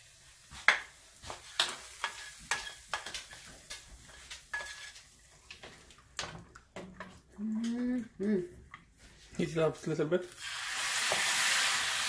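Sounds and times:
light sizzle: 0:00.0 - 0:08.5, 0:09.4 - 0:12.0
metal spoon scraping a pan: 0:01.4 - 0:05.7.

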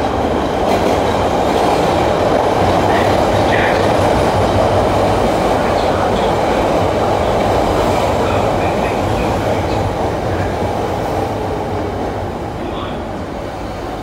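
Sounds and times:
subway train rumble and rattle: 0:00.0 - 0:14.0.

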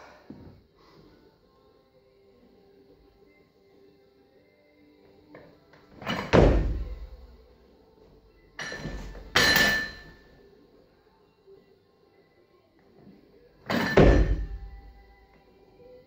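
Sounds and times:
barbell dropped bang and clang: 0:06.0 - 0:07.1, 0:08.6 - 0:10.2, 0:13.7 - 0:14.8
feet stamping heavy thud: 0:06.1 - 0:07.2, 0:13.8 - 0:14.8.

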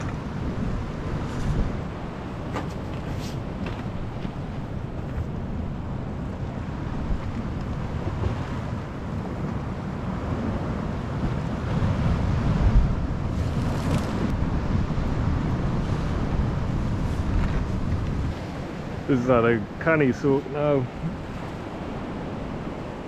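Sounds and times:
sea surf on shore: 0:00.0 - 0:23.0
wind buffeting microphone: 0:00.0 - 0:23.0.

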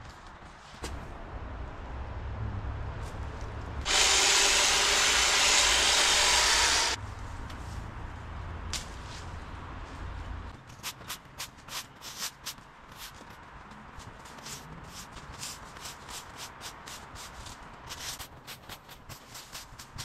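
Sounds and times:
leaf blower: 0:03.9 - 0:07.0.

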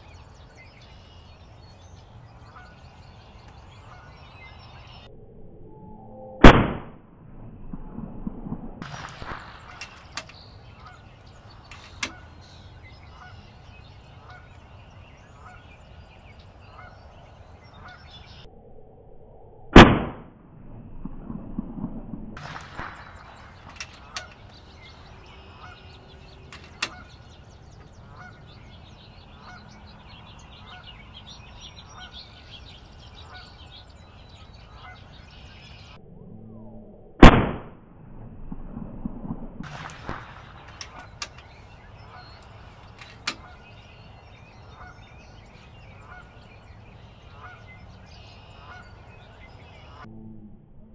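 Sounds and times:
air rifle shots: 0:06.4 - 0:07.0, 0:08.8 - 0:12.4, 0:19.8 - 0:20.3, 0:22.4 - 0:27.5, 0:37.2 - 0:37.7, 0:39.6 - 0:43.7
light clicks: 0:11.2 - 0:12.6.

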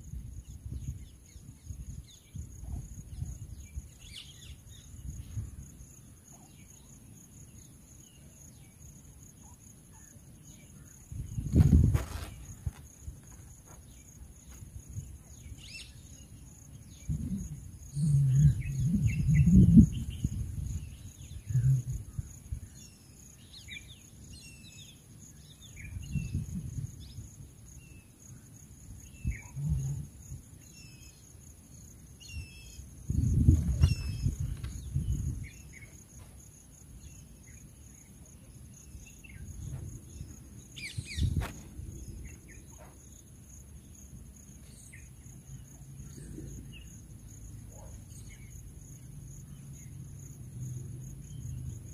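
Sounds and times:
high insect buzz: 0:10.8 - 0:51.9
bird chirps: 0:33.7 - 0:36.0.

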